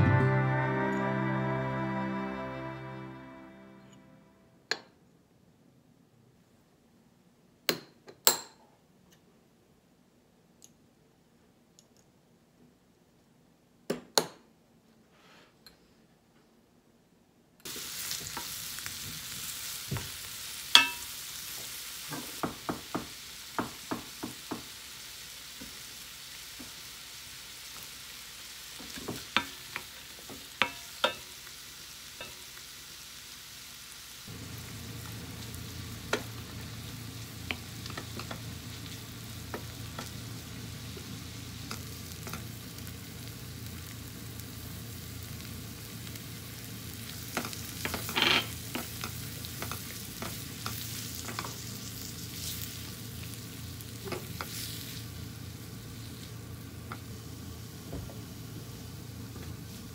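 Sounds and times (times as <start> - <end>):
food sizzling in a frying pan: 17.6 - 59.9.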